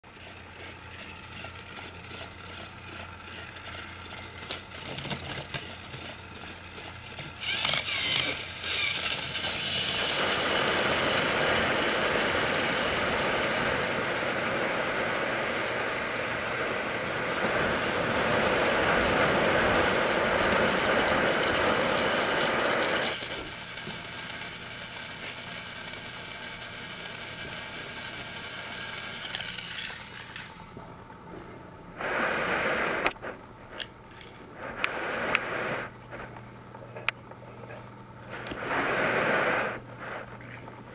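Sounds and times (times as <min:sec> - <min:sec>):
toy train motors whirring: 0:00.0 - 0:30.8.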